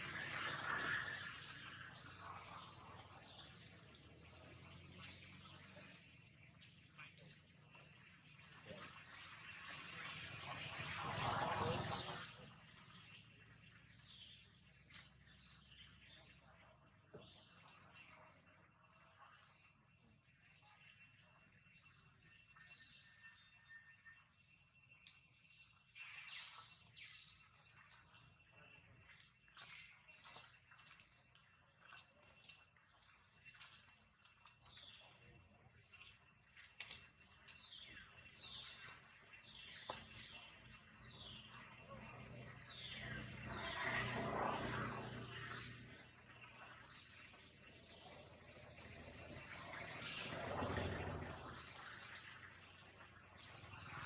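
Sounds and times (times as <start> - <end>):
bird chirping: 12.0 - 54.0.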